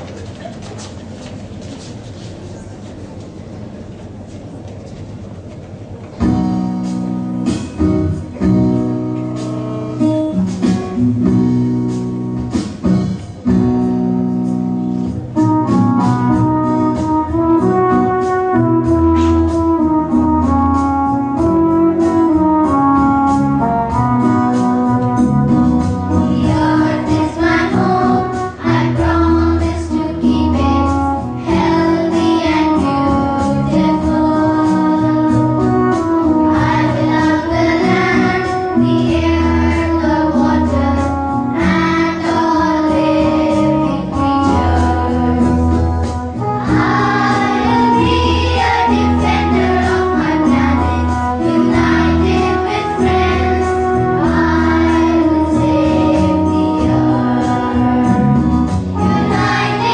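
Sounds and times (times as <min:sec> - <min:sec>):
instrumental accompaniment with beat: 0:06.2 - 0:59.9
children singing: 0:26.2 - 0:30.8, 0:31.4 - 0:35.5, 0:36.6 - 0:45.8, 0:46.5 - 0:58.2, 0:59.0 - 0:59.9.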